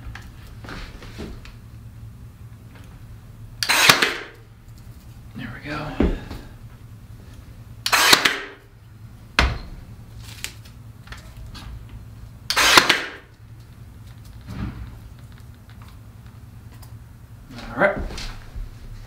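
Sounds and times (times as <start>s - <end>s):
nail gun firing: 3.6s - 4.4s, 7.8s - 8.6s, 12.5s - 13.3s.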